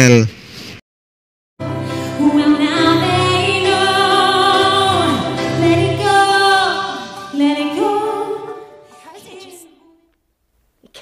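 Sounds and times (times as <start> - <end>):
woman singing into microphone: 1.8 - 10.0.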